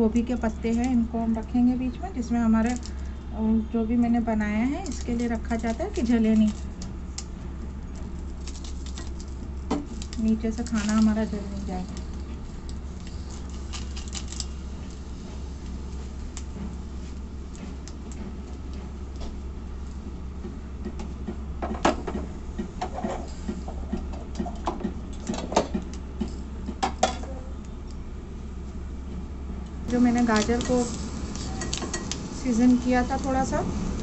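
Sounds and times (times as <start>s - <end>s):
steady low hum: 0.0s - 34.0s
food crackling on hot plate: 4.6s - 21.5s, 29.6s - 34.0s.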